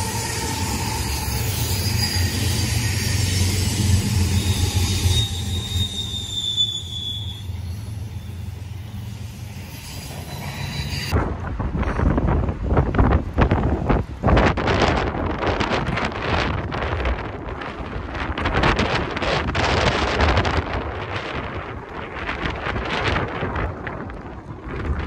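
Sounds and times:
high wheel squeal: 0.0 - 11.2
diesel locomotives rumbling: 0.0 - 25.0
wind buffeting the microphone: 11.1 - 25.0.

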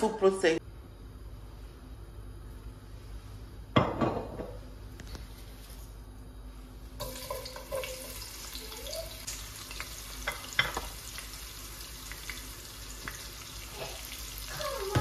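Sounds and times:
onion sizzling in hot oil: 7.0 - 14.9.

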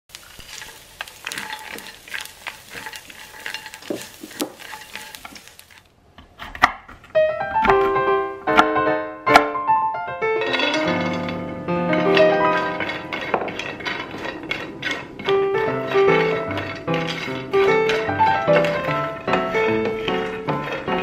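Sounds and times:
fish sizzling in frying pan: 0.1 - 5.9
piano music: 7.1 - 21.0.

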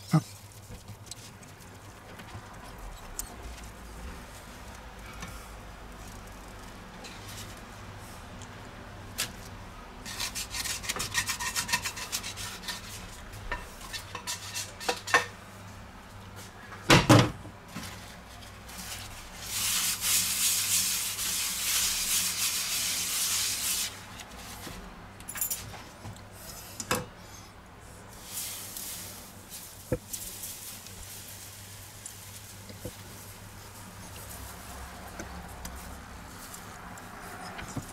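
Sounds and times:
spatula scraping frying pan: 13.7 - 15.2.

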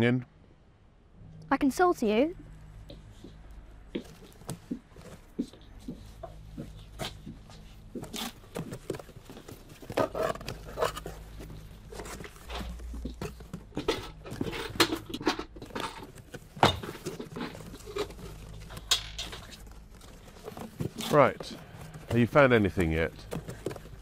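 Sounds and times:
toys being rummaged through: 6.0 - 24.0.

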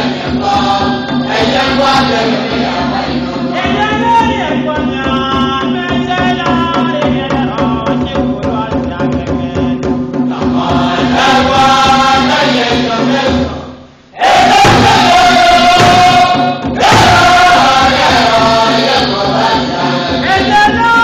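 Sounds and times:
church choir singing: 0.0 - 4.6, 10.3 - 21.0.

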